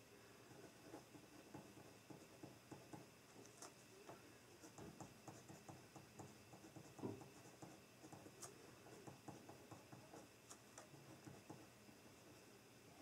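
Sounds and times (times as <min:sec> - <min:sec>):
pen writing on paper: 0:00.5 - 0:03.8, 0:04.6 - 0:11.7
pen knock: 0:04.8 - 0:08.3, 0:09.0 - 0:10.2.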